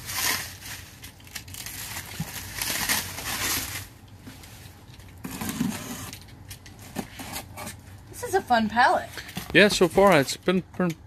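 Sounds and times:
plastic wrap crinkling: 0:00.0 - 0:05.4.

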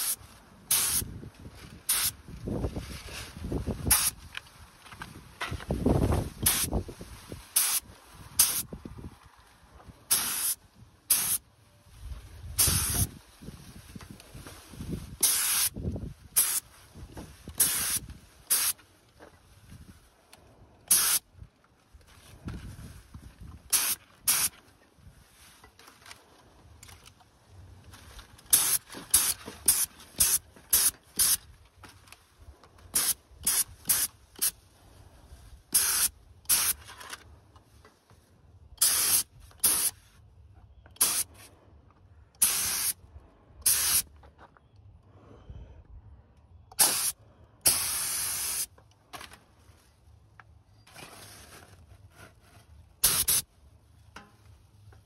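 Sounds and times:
paint spray hissing bursts: 0:00.0 - 0:01.1, 0:01.9 - 0:02.2, 0:03.9 - 0:04.2, 0:06.4 - 0:06.8, 0:07.5 - 0:08.7, 0:10.1 - 0:11.4, 0:12.6 - 0:13.1, 0:15.2 - 0:15.8, 0:16.4 - 0:16.6, 0:17.6 - 0:18.8, 0:20.9 - 0:21.2, 0:23.7 - 0:24.5, 0:28.5 - 0:31.4, 0:32.9 - 0:34.6, 0:35.7 - 0:36.8, 0:38.8 - 0:40.0, 0:41.0 - 0:41.3, 0:42.4 - 0:43.0, 0:43.6 - 0:44.1, 0:46.7 - 0:48.7, 0:53.0 - 0:53.5.

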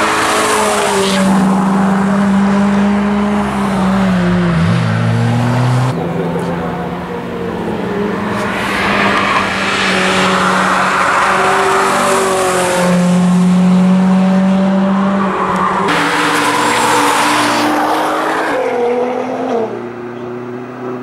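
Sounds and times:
tyres skidding: 0:00.0 - 0:20.2
car engine passing: 0:00.0 - 0:21.0.

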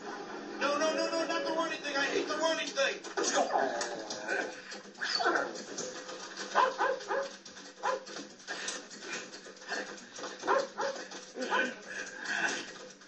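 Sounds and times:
dog barking through tv speaker: 0:06.4 - 0:08.2, 0:10.4 - 0:11.8.

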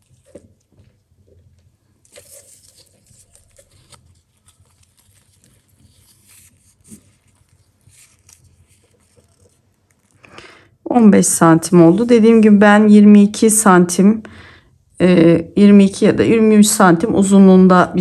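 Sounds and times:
paper yarn rustling and crinkling: 0:00.0 - 0:10.3.

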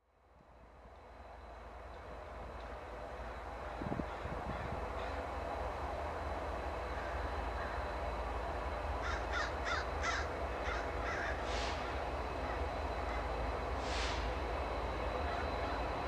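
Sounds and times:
distant diesel locomotive rumble: 0:00.0 - 0:16.0
crow cawing: 0:09.0 - 0:12.0.

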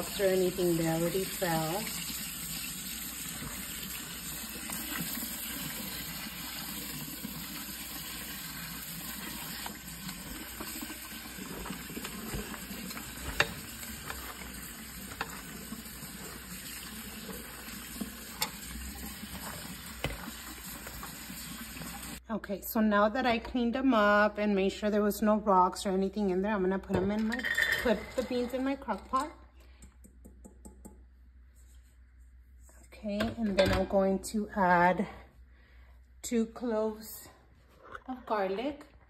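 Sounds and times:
faucet running into pot: 0:00.0 - 0:22.2
hand stirring beans in water: 0:00.0 - 0:22.2.

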